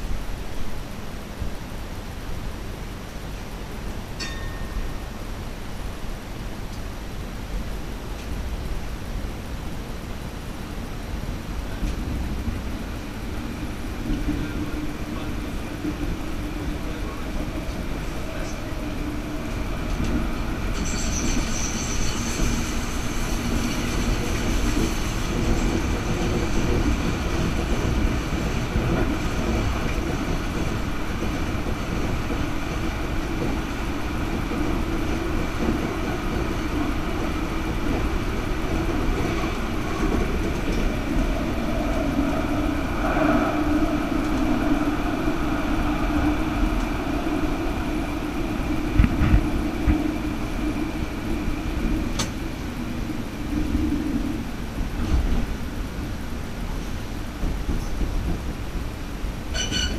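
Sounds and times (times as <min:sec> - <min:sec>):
tram wheels rumbling: 0:00.0 - 0:59.9
high wheel squeal: 0:20.5 - 0:26.1, 0:59.5 - 0:59.9.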